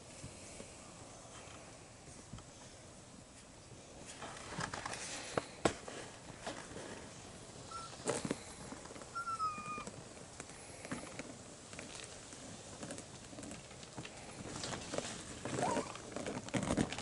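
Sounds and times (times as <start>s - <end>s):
puppy squeak: 7.7s - 8.0s, 9.2s - 9.9s, 15.6s - 15.9s.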